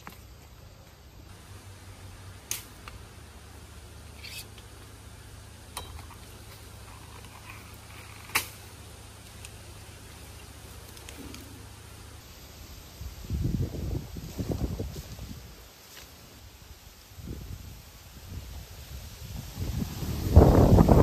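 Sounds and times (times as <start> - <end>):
stalks snapping: 2.4 - 3.0, 8.2 - 8.6.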